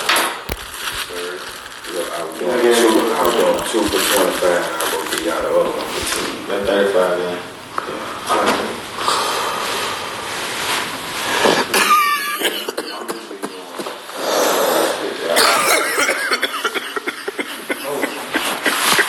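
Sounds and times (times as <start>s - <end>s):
man coughing: 11.5s - 14.1s, 15.2s - 19.0s.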